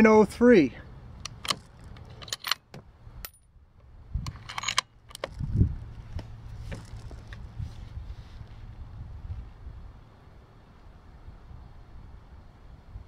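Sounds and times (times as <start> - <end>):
rifle bolt clicks and clinks: 1.2 - 3.5, 4.2 - 5.6.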